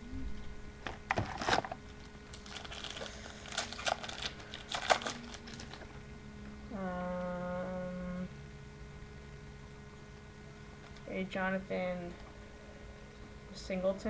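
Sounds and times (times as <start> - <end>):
foil wrappers crinkling: 1.1 - 6.0.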